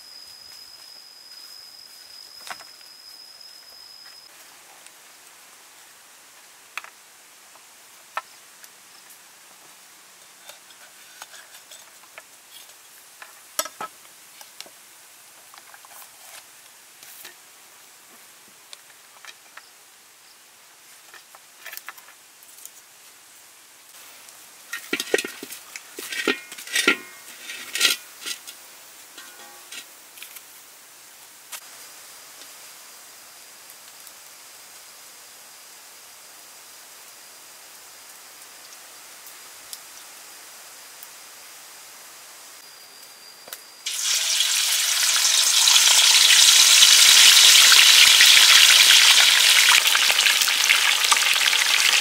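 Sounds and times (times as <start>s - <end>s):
wok clanking on metal stand: 24.7s - 28.4s, 29.2s - 29.9s.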